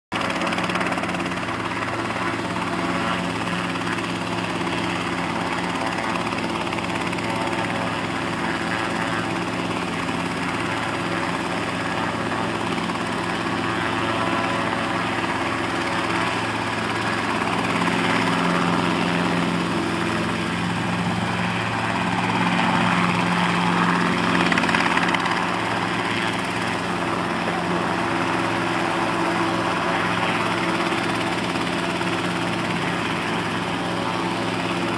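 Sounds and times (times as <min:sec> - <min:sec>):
helicopter hovering: 0:00.1 - 0:34.9.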